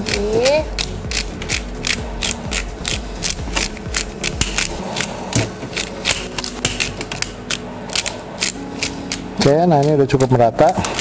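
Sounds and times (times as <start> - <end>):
spice grinder clicking: 0.0 - 5.1.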